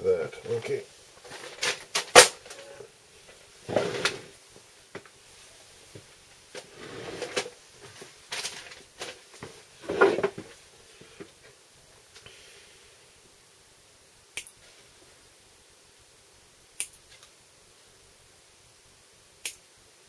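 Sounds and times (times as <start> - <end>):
rustling of box and bag: 0.5 - 2.8, 5.8 - 11.4.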